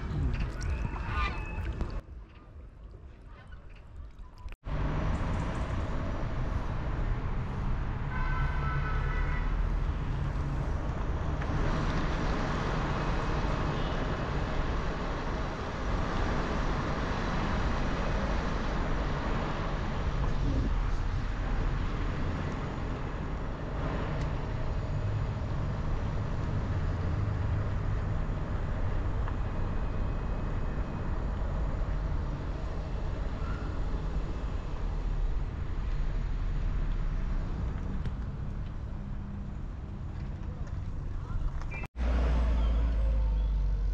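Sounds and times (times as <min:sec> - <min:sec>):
low rumble: 0:00.0 - 0:02.0.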